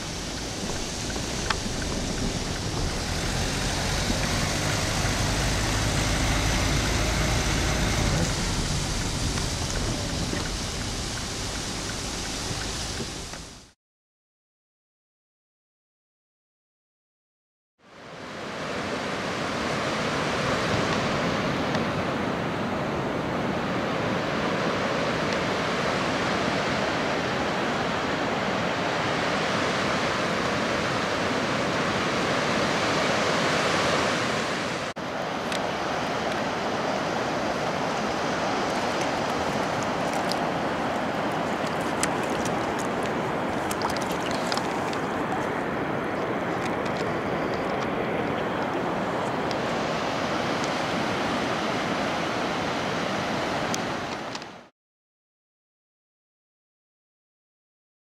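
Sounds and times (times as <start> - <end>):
surf washing onto beach: 0.0 - 13.7, 18.1 - 54.7
wind on microphone: 0.0 - 13.7.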